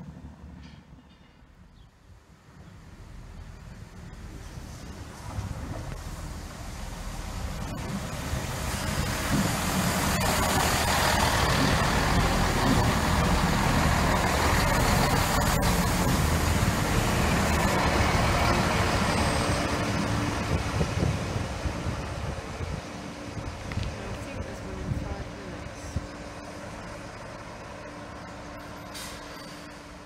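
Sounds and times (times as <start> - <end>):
diesel train engine: 0.0 - 30.0
train wheels on rails: 0.0 - 30.0.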